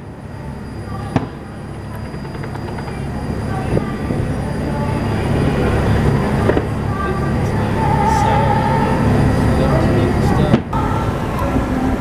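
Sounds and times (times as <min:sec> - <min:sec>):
boat engine rumbling: 0:00.0 - 0:12.0
distant fireworks bangs: 0:01.0 - 0:04.4, 0:06.1 - 0:06.9.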